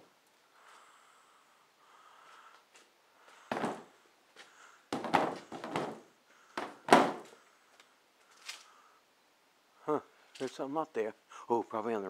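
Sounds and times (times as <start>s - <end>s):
pole knocking against ceiling: 3.5s - 3.9s, 4.9s - 7.3s.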